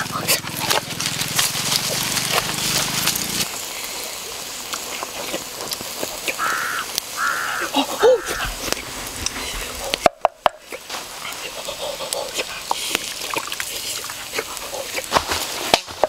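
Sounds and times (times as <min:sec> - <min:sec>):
wood fire crackling: 0:00.0 - 0:16.0
bird cawing: 0:06.2 - 0:08.8.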